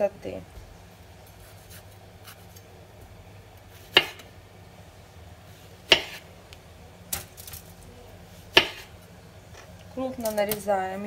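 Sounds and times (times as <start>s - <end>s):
knife cutting tomato: 1.4s - 2.6s, 3.8s - 4.2s, 5.9s - 6.2s.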